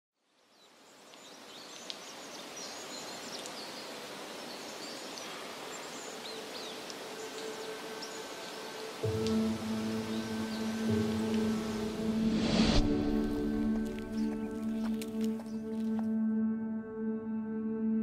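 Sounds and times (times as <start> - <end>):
steady hiss: 0.7 - 14.3.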